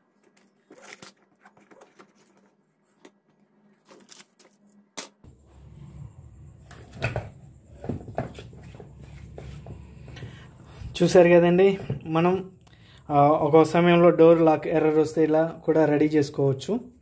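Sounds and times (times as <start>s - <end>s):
low steady hum: 1.7s - 13.6s
foil tape crinkling: 3.7s - 5.2s.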